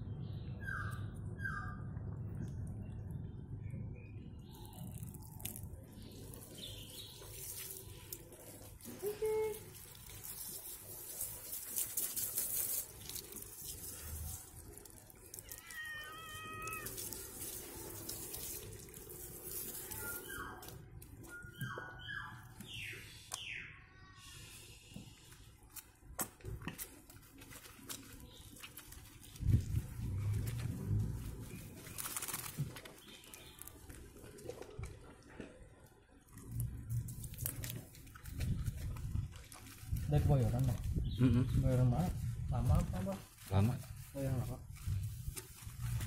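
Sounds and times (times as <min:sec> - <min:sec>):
hose water splashing on concrete: 0:04.4 - 0:21.3, 0:42.7 - 0:46.0
short high chirping calls: 0:19.7 - 0:20.7.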